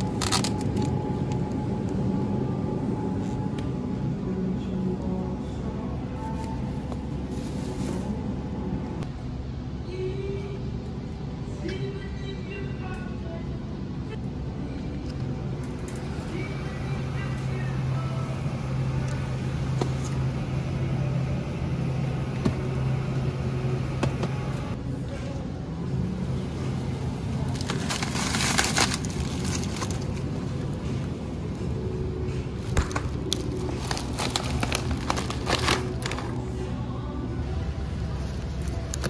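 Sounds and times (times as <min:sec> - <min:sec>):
steady low hum: 0:00.0 - 0:39.0
plastic bag crinkling: 0:27.5 - 0:30.2, 0:32.6 - 0:36.4.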